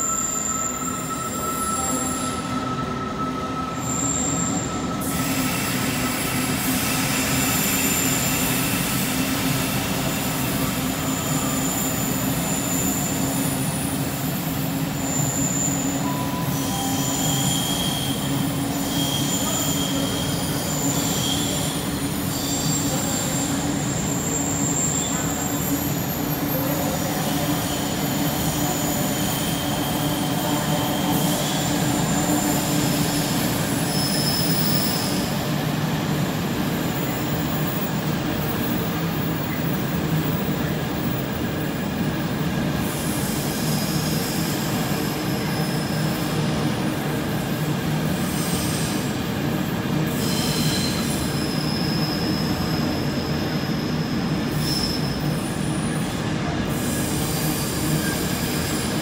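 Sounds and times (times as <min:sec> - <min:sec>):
high wheel squeals: 0:00.0 - 0:09.0, 0:09.8 - 0:35.5, 0:48.1 - 0:59.0
train wheels rumbling on rail: 0:00.0 - 0:59.0.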